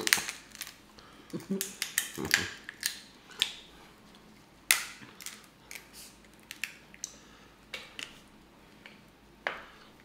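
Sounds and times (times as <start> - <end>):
crab shells cracking: 0.0 - 3.6, 4.7 - 7.2.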